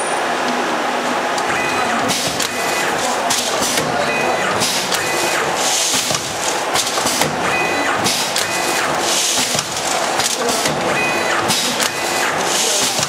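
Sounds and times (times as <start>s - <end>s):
packing machine clattering: 1.4s - 13.0s
bursts of hiss: 2.0s - 7.3s, 8.0s - 10.8s.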